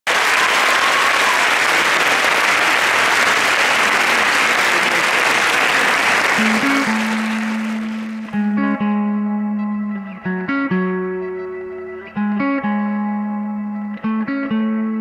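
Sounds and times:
audience applause: 0.0s - 8.4s
guitar piece: 6.2s - 15.0s.

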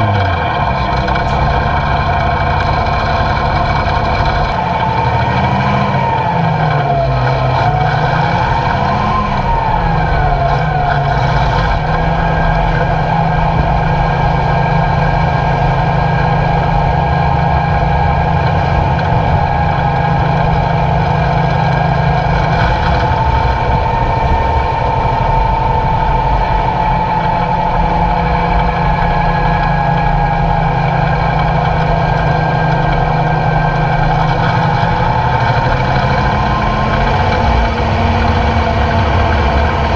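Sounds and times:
truck diesel engine droning: 0.0s - 39.9s.

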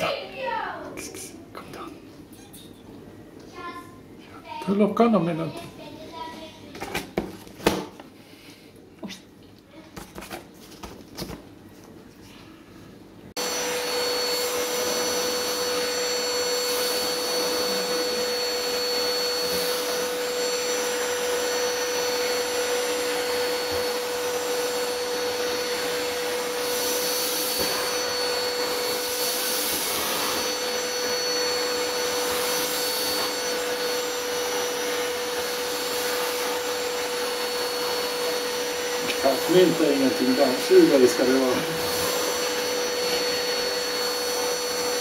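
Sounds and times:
vacuum cleaner running: 13.2s - 45.0s.

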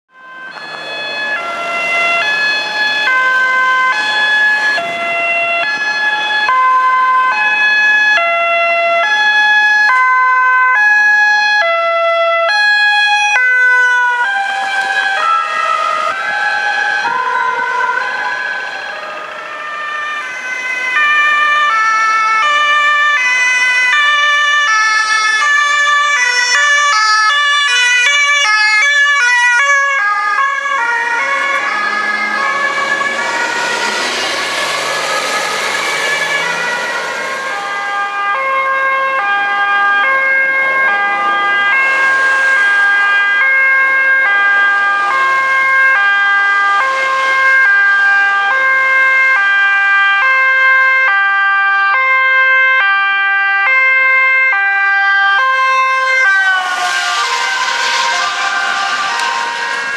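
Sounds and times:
two-tone ambulance sirens: 0.1s - 59.9s
loud rushing noise: 30.4s - 47.8s, 55.4s - 59.9s.

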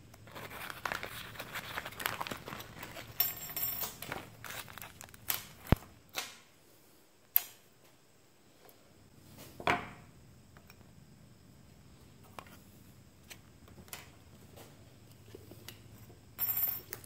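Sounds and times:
plastic bags crinkling: 0.2s - 5.9s
parts set down on workbench: 9.4s - 10.0s.

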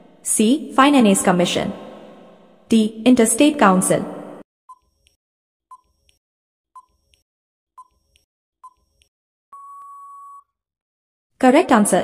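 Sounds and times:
long steady beep: 9.6s - 10.5s
short beeps: 9.6s - 10.5s.

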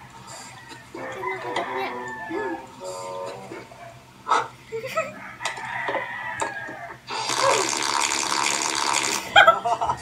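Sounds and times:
group of people laughing: 9.3s - 10.0s.

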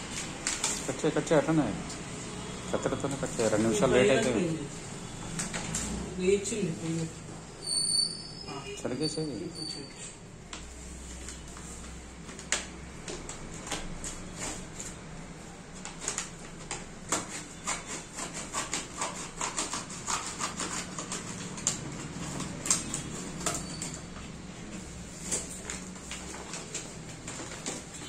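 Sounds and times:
paper crinkling and rustling: 0.0s - 1.7s, 10.5s - 28.0s
scissors snipping paper: 15.7s - 24.2s.

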